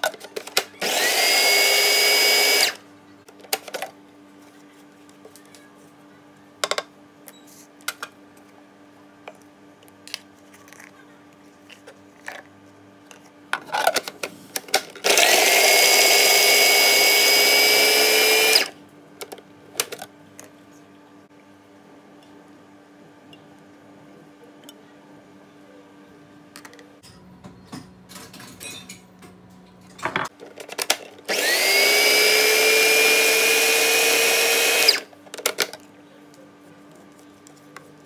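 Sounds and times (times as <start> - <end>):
food processor motor chopping: 0.4 - 2.8, 15.0 - 18.8, 31.3 - 35.1.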